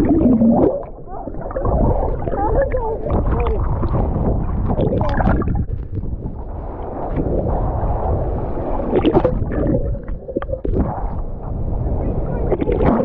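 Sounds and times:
low rumbling noise: 0.0 - 13.0
muffled voices: 11.8 - 13.0.

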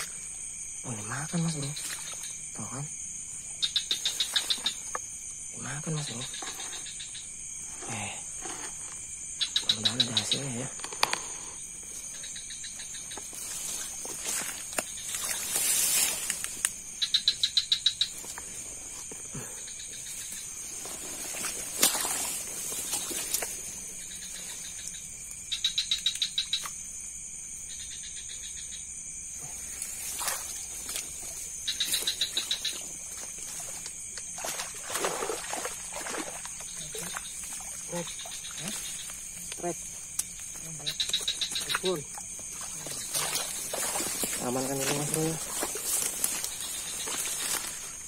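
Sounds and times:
insects droning: 0.0 - 48.0
rustles: 10.7 - 17.0, 18.0 - 25.4, 29.4 - 48.0.

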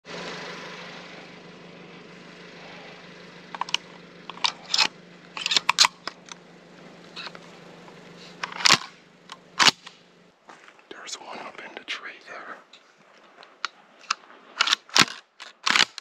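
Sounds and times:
steady low hum: 0.0 - 16.0
shotgun handling clicks and rustles: 3.5 - 6.4, 7.1 - 10.0, 12.7 - 16.0.

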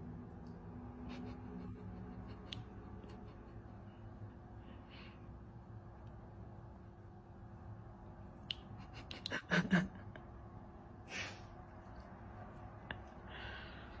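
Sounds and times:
steady low hum: 0.0 - 14.0
breathy sniff: 11.0 - 11.6.

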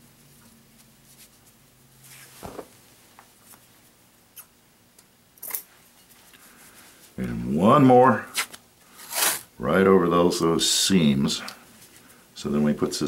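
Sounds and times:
tape and hands rustling: 8.3 - 9.5.

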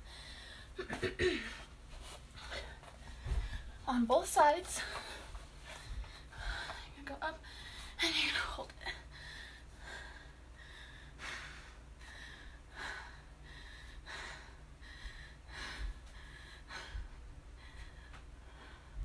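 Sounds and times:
woman breathing hard: 0.0 - 0.8, 2.4 - 3.8, 4.8 - 8.2, 8.8 - 19.0.

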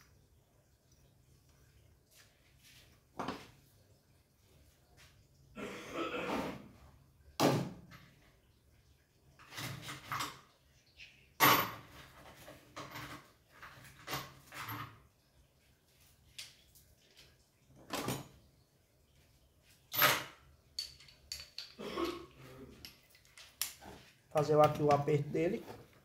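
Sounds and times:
metal tools clinking on workbench: 19.9 - 23.6.

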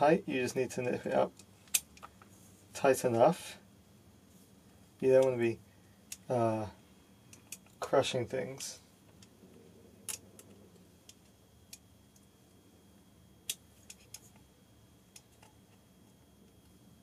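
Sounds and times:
small metal parts clicking: 13.4 - 14.4.

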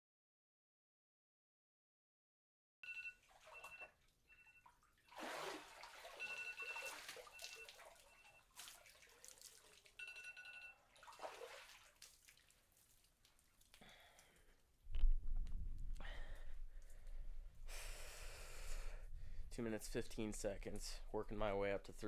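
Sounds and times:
water splashing and sloshing: 3.0 - 14.4.

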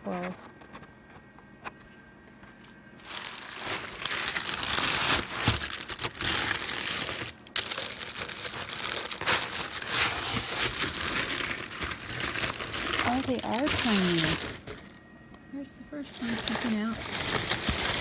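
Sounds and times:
paper packing wrap crinkling: 3.0 - 15.0, 16.0 - 18.0.

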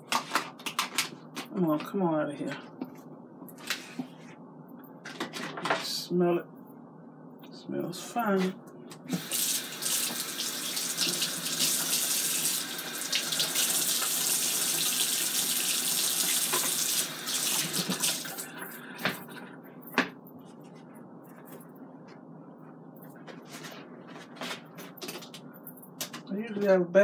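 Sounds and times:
faucet running into sink: 9.2 - 18.5.

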